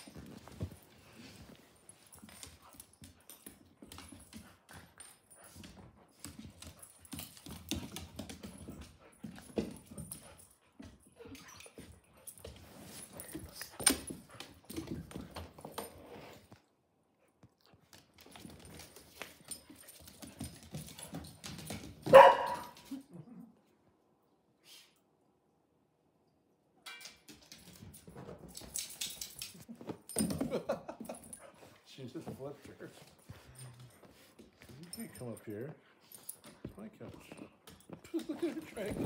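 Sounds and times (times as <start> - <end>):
dogs scuffling: 0.0 - 16.6, 17.7 - 23.0, 27.3 - 39.0
dog barking loudly: 22.1 - 22.8.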